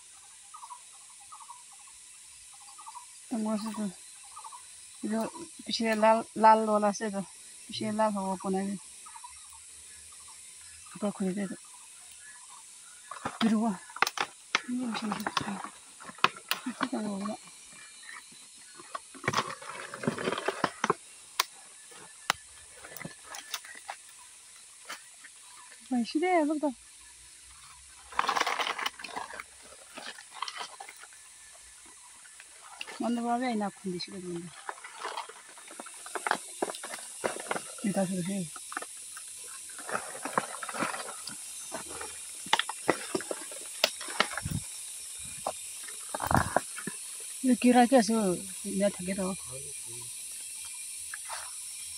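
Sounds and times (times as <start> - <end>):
leaves and twigs rustling: 0.0 - 51.9
steady high hiss: 0.0 - 51.9
crabs clicking: 11.5 - 25.8, 34.5 - 47.4.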